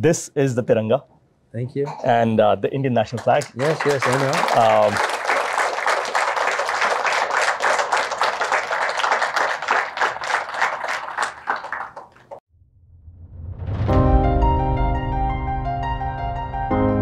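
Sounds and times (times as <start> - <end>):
audience applauding: 3.0 - 12.4.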